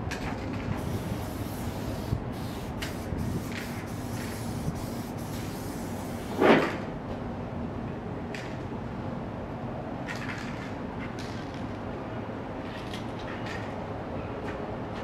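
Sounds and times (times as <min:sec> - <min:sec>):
spray-paint can hissing: 0:00.8 - 0:06.4.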